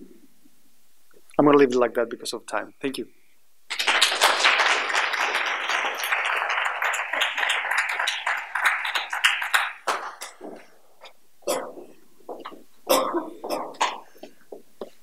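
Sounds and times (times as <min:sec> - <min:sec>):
audience applauding: 0:03.7 - 0:10.7.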